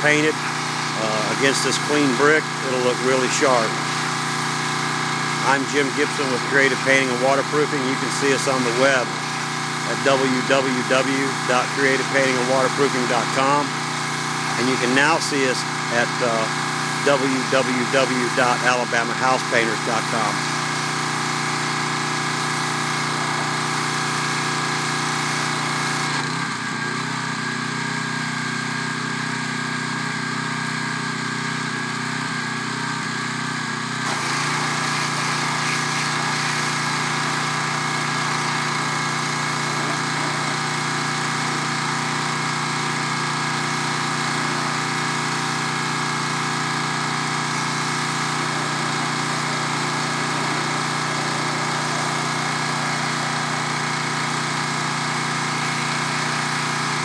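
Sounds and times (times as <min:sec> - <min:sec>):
pressure washer engine running: 0:00.0 - 0:57.0
hiss of water spray: 0:34.1 - 0:53.6.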